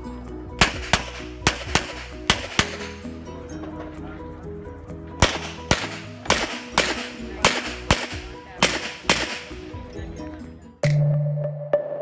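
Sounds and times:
background music: 0:00.0 - 0:12.0
handgun shots in pairs: 0:00.6 - 0:03.1, 0:05.2 - 0:09.8.

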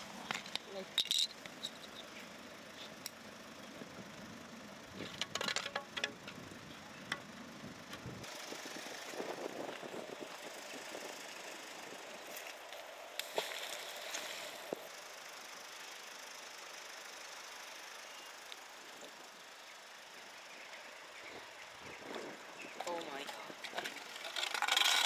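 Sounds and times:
outdoor background hiss: 0:00.0 - 0:25.0
metal object clicking and clattering: 0:05.1 - 0:06.3, 0:23.2 - 0:25.0.

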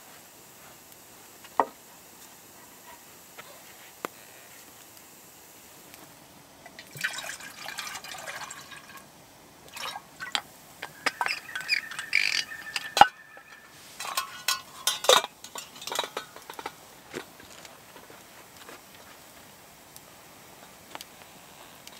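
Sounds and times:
water pouring into metal kettle: 0:06.7 - 0:16.6
kettle lid and handle clinking: 0:09.8 - 0:16.8.

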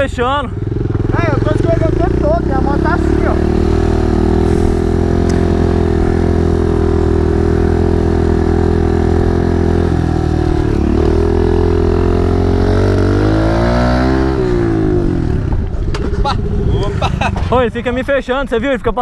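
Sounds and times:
small motorcycle engine running: 0:00.5 - 0:15.6.

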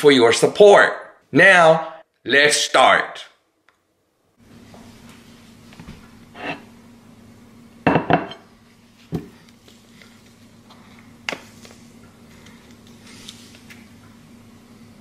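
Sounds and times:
steady low hum: 0:04.2 - 0:15.0
plate clinking on countertop: 0:07.9 - 0:08.4.

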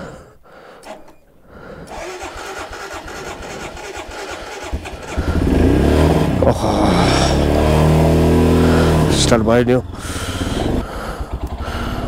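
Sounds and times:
motorcycle engine cranking: 0:00.8 - 0:06.5, 0:07.3 - 0:12.0.

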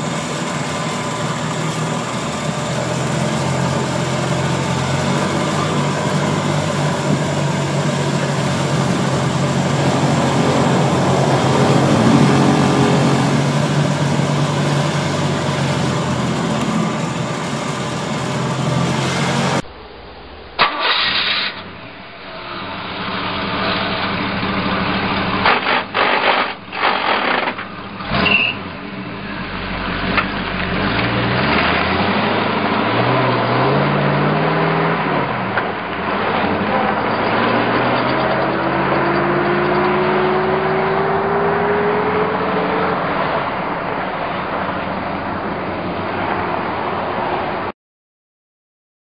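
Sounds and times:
golf cart engine running: 0:00.0 - 0:19.6
thin rising whine: 0:00.0 - 0:20.9.

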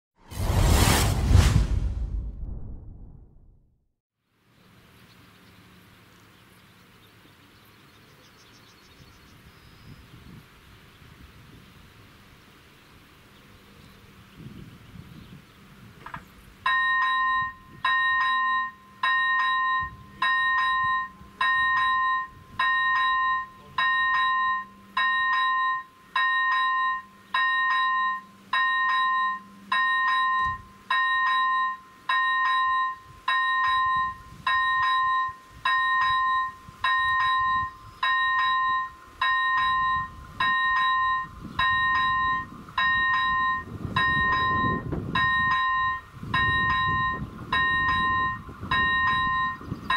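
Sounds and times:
level crossing warning bell: 0:16.6 - 0:49.9.

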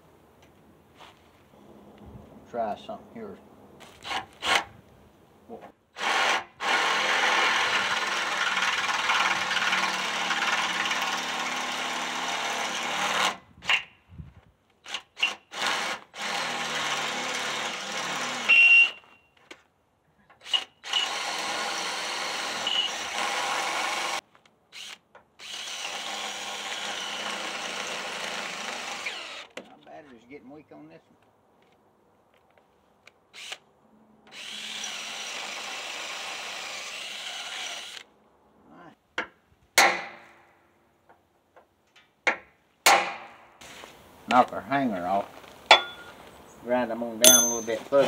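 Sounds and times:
high drill squeal: 0:22.6 - 0:23.1.

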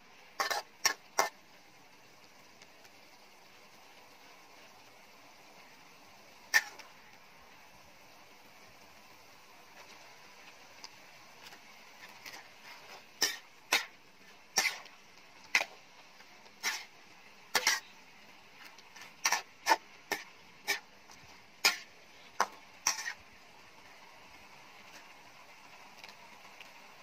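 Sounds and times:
metal spatula scraping a wok: 0:00.3 - 0:01.4, 0:06.5 - 0:06.9, 0:11.4 - 0:23.3.

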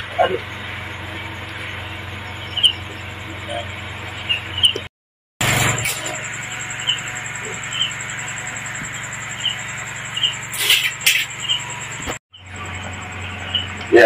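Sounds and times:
low hum: 0:00.0 - 0:14.0
high pulsing tone: 0:05.4 - 0:14.0.

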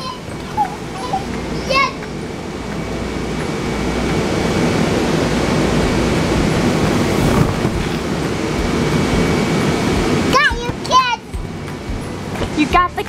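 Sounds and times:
electric blower fan running: 0:00.0 - 0:13.0.

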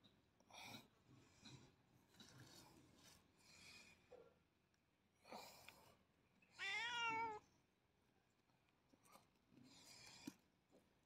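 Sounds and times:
cat meowing: 0:06.6 - 0:07.4.

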